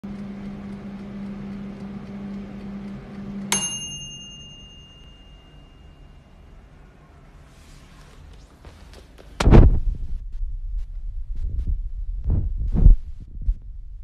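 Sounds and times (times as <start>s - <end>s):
air fryer humming: 0.0s - 6.8s
timer bell ding: 3.5s - 6.6s.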